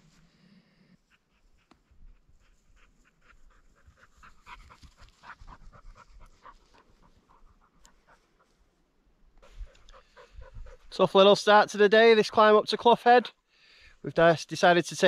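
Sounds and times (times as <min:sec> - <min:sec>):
dog panting: 0:00.8 - 0:08.7, 0:09.4 - 0:11.0.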